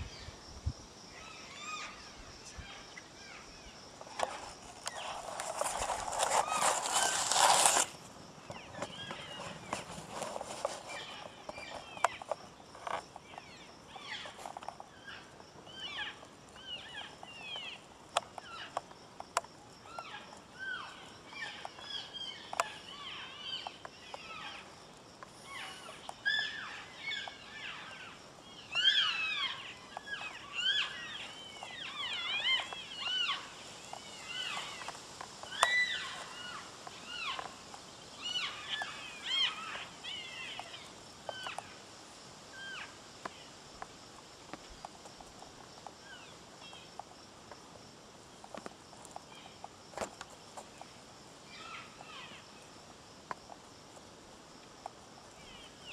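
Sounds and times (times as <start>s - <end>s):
elk mewing and chirping: 25.4s - 37.5s, 38.2s - 41.8s.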